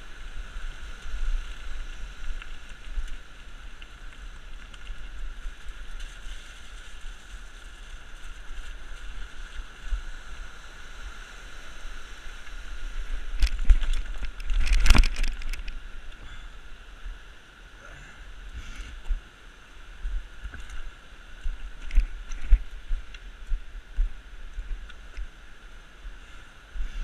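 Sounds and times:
wind rumbling on microphone: 0.0s - 27.0s
bike knocking and rattling over rocks: 1.1s - 10.0s, 13.1s - 15.8s, 21.5s - 23.1s.

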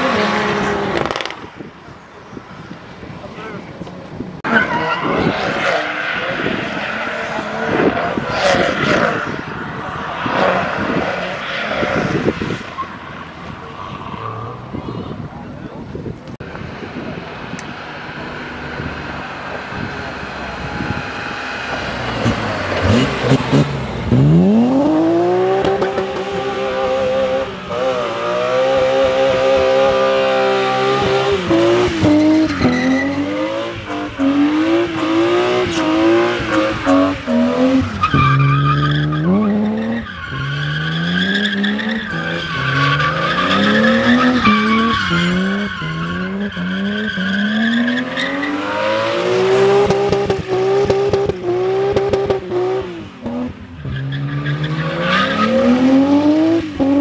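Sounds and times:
car engine revving: 0.0s - 1.5s, 16.4s - 57.0s
tyres squealing: 34.9s - 49.0s.

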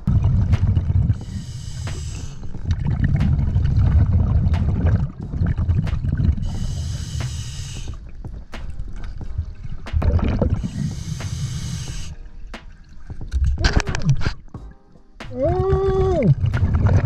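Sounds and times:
exhaled air bubbling: 0.0s - 14.6s, 15.3s - 17.0s
regulator inhale hissing: 1.2s - 2.6s, 6.4s - 8.0s, 10.6s - 12.2s.

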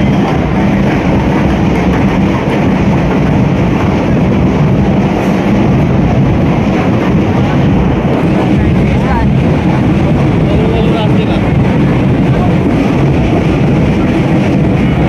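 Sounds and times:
large crowd din: 0.0s - 15.0s.

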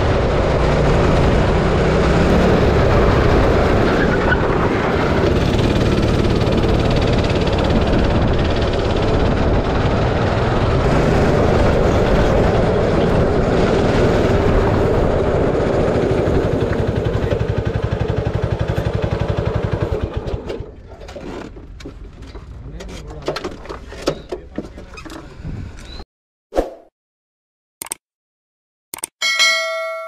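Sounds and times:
go-kart engine running: 0.0s - 22.8s.

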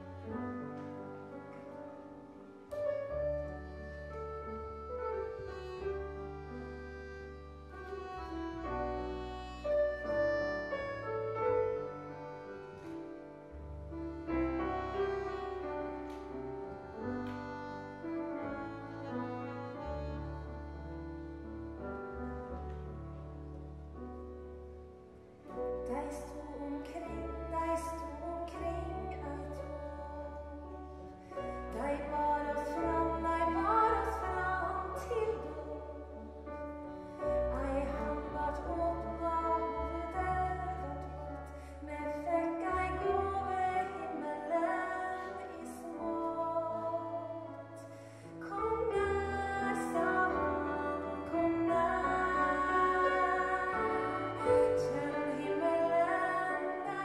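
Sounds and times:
accordion: 0.0s - 57.0s
piano: 0.0s - 57.0s
woman singing: 25.8s - 30.9s, 31.6s - 57.0s.

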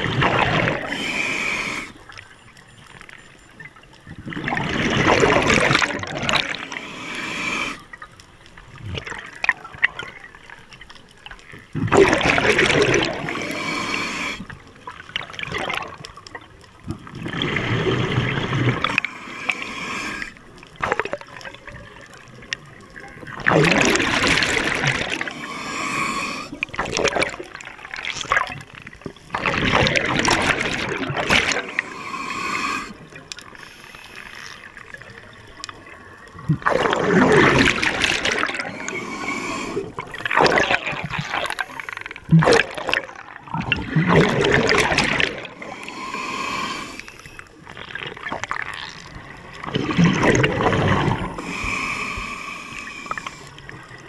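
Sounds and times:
diver exhaling bubbles underwater: 0.0s - 2.0s, 4.2s - 7.8s, 11.8s - 14.5s, 17.0s - 21.5s, 23.3s - 28.5s, 29.3s - 33.2s, 36.4s - 47.0s, 49.6s - 53.6s.

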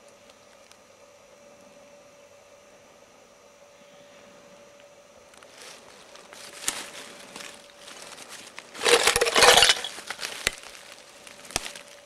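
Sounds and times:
dry leaves and litter crunching: 5.4s - 12.0s.

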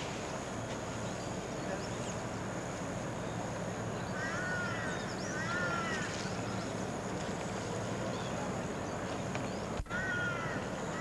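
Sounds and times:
outdoor background hiss: 0.0s - 11.0s
small birds chirping: 0.0s - 11.0s
crow cawing: 4.2s - 6.1s, 9.9s - 11.0s.

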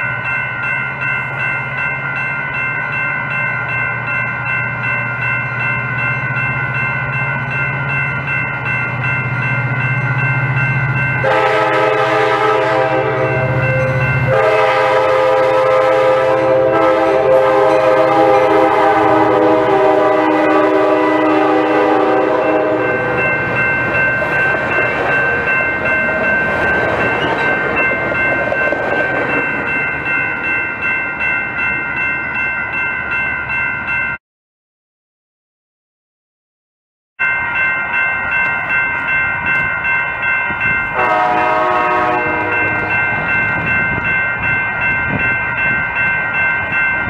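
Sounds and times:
bell ringing: 0.0s - 34.2s, 37.2s - 47.0s
locomotive engine drone: 2.8s - 30.8s
train multi-chime horn: 9.0s - 29.4s, 39.1s - 47.0s
train wheel clatter: 23.4s - 30.1s.

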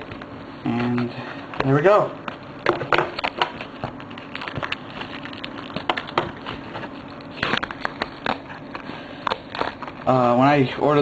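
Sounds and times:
plastic shrink wrap crackling: 3.1s - 10.6s.

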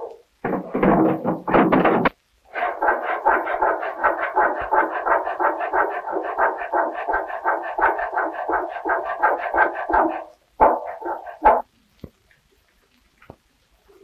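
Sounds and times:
hand tool rasping wood: 0.5s - 11.6s.

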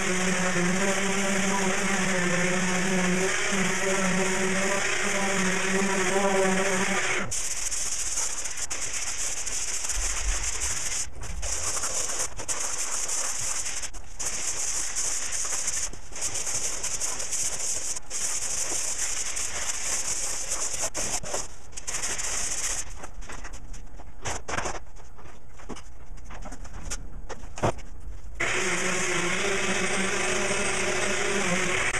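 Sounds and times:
electric orbital sander running: 0.0s - 7.3s, 28.4s - 31.9s
scratchy sanding by hand: 0.0s - 22.9s, 28.4s - 31.9s.

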